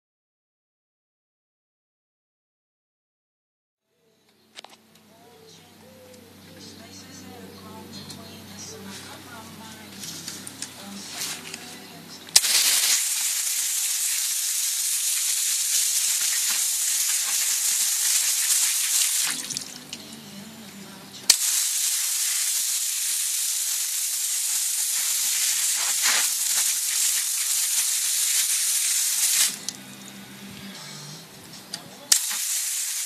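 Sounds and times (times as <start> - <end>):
hose spray hissing on wheel: 12.4 - 19.8, 21.3 - 29.8, 32.1 - 33.0
sharp nozzle click: 32.1 - 32.7.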